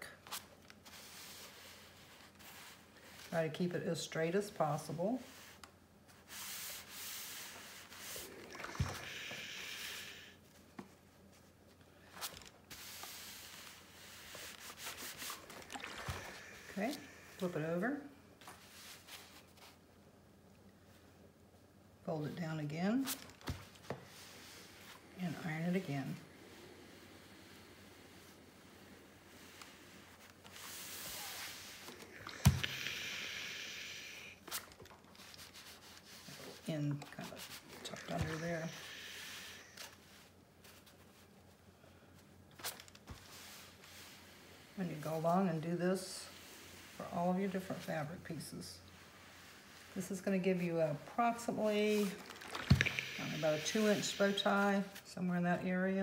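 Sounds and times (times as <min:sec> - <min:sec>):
steam iron hissing: 0:07.2 - 0:10.4, 0:30.6 - 0:34.4, 0:37.9 - 0:39.8, 0:52.6 - 0:54.9
iron scraping over fabric: 0:12.7 - 0:18.0, 0:35.4 - 0:40.1, 0:48.9 - 0:55.0.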